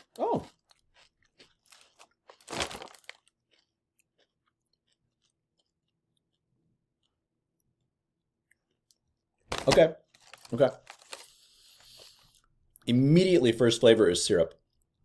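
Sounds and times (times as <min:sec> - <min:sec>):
crunching and chewing crispy chip: 0:00.0 - 0:07.7, 0:08.5 - 0:11.5.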